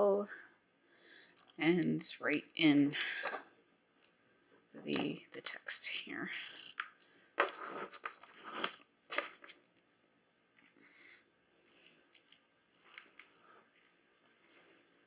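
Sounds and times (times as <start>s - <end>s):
notebook and pens handled on table: 6.9s - 9.6s.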